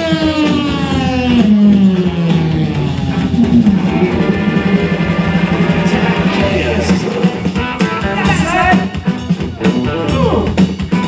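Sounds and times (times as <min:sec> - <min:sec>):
live rock band playing: 0:00.0 - 0:11.0
note sliding down in pitch: 0:01.4 - 0:06.0.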